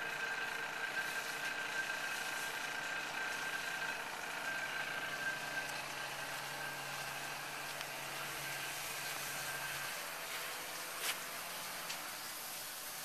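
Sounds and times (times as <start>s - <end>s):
spray rig engine humming: 0.0s - 13.0s.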